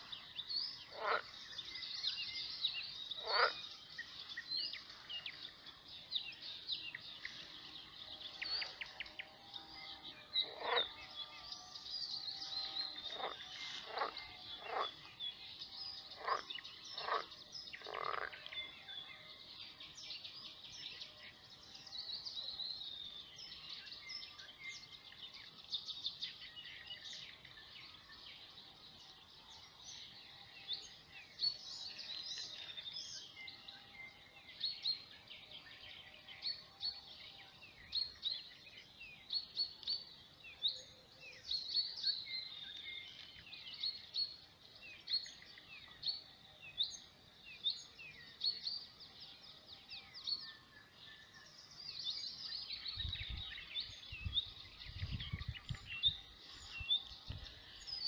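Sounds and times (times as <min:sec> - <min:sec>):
songbirds chirping and trilling: 0:00.0 - 0:58.0
frog croaking: 0:00.8 - 0:01.3, 0:03.2 - 0:03.6, 0:10.4 - 0:10.9, 0:13.1 - 0:15.1, 0:16.2 - 0:18.4.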